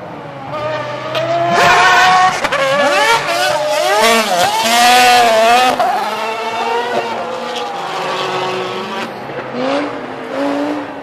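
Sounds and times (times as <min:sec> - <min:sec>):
racing car approaching: 0:00.0 - 0:11.0
race car engine revving: 0:00.4 - 0:11.0.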